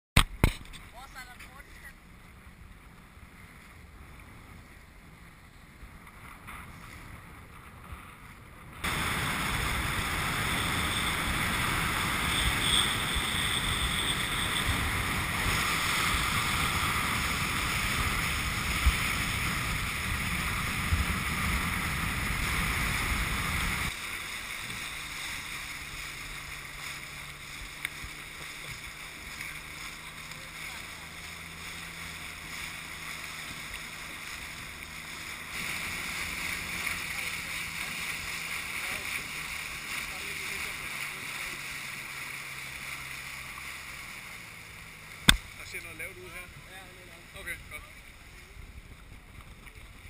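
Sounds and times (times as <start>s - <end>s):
water rushing past boat: 0.2s - 50.0s
wind on microphone: 8.5s - 23.9s.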